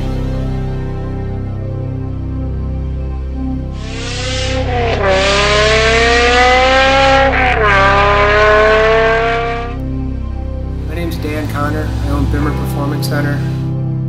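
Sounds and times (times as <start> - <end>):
background music: 0.0 - 14.0
car engine accelerating: 3.4 - 14.0.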